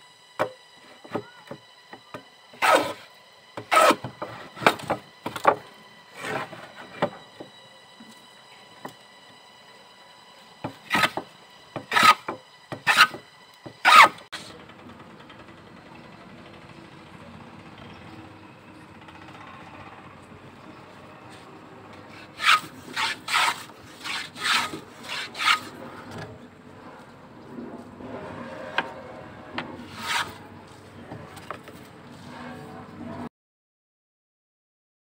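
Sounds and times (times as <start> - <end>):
hand plane rasping on wood: 2.6 - 3.0, 3.6 - 5.6, 6.2 - 7.2, 10.6 - 14.2, 22.1 - 25.8, 29.8 - 30.4.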